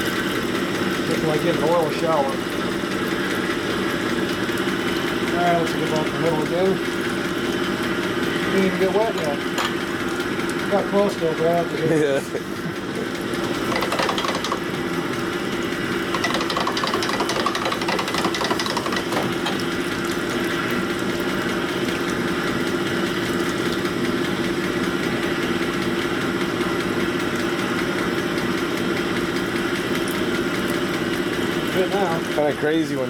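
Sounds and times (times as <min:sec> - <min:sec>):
honing machine motor hum: 0:00.9 - 0:22.4
piston grinding on mandrel: 0:13.3 - 0:15.1, 0:16.0 - 0:19.6.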